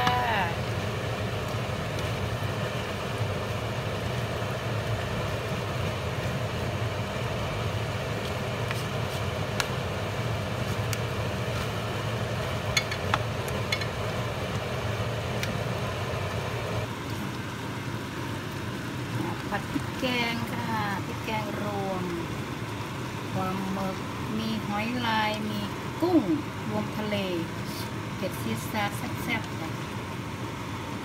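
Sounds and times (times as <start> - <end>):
food sizzling in a frying pan: 0.0 - 31.0.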